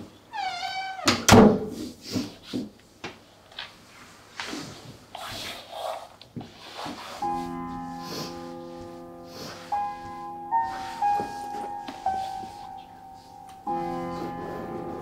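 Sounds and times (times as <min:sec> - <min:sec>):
door slamming shut: 0:01.0 - 0:01.8
soft sustained music notes: 0:07.2 - 0:15.0
woman breathing heavily: 0:07.8 - 0:15.0.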